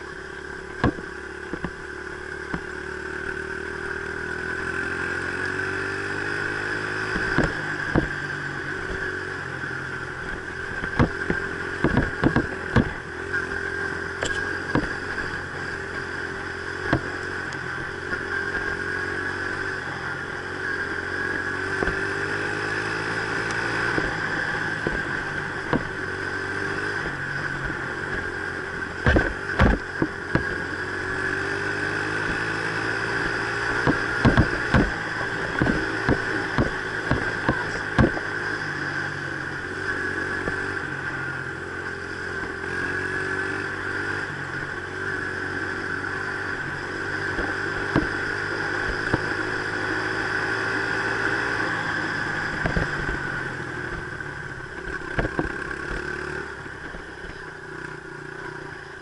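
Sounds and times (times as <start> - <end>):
dirt bike engine revving: 0.0 - 59.0
sharp knocks and clatters: 29.0 - 30.6, 33.8 - 38.3.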